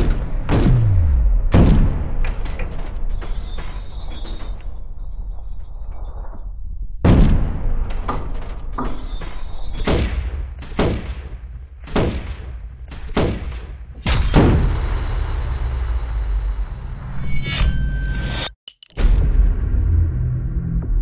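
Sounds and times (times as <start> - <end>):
low rumble: 0.0 - 3.2, 14.3 - 21.0
machine-gun shots echoing: 9.7 - 14.8.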